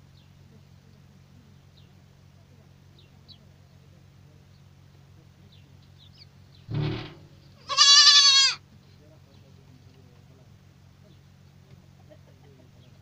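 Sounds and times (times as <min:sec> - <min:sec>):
goat kids bleating: 0:07.6 - 0:08.6.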